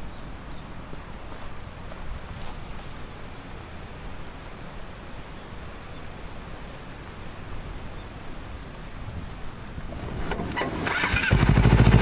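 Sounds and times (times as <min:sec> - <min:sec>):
light rustles: 0:01.3 - 0:03.6
wind buffeting microphone: 0:07.2 - 0:10.4.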